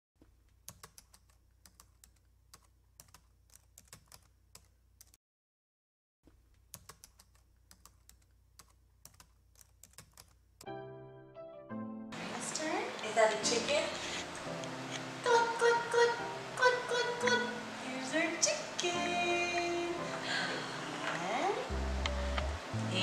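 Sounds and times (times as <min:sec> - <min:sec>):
keyboard typing clicks: 0:00.6 - 0:05.2, 0:06.6 - 0:10.7.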